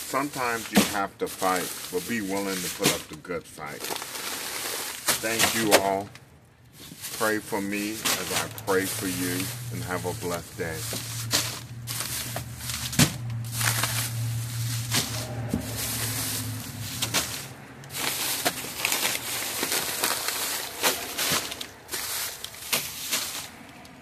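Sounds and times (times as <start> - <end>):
plastic bags rustling: 0.0 - 24.0
low hum: 10.4 - 23.7.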